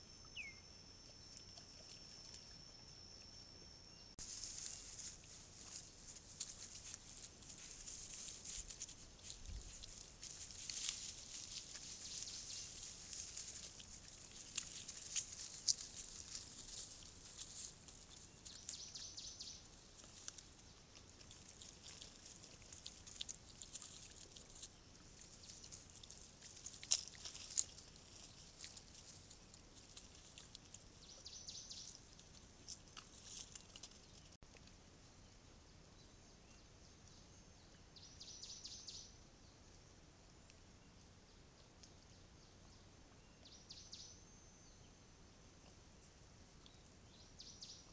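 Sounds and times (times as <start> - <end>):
rustles and crunches on ground: 4.2 - 34.7.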